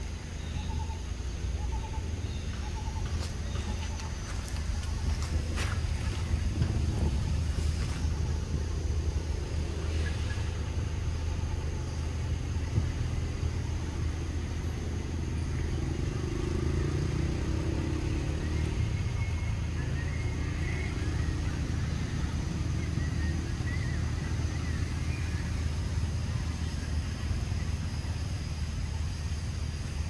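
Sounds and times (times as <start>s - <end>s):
low motor rumble: 0.0s - 30.0s.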